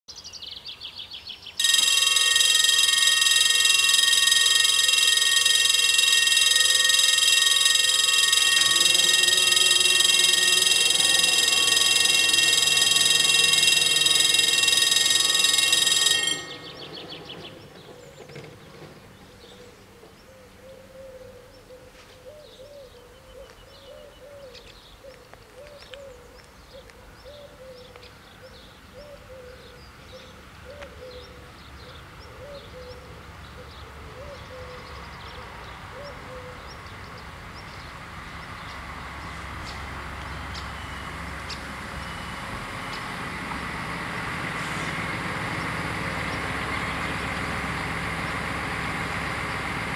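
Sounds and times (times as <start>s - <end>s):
level crossing warning bells ringing: 1.6s - 20.3s, 34.4s - 49.9s.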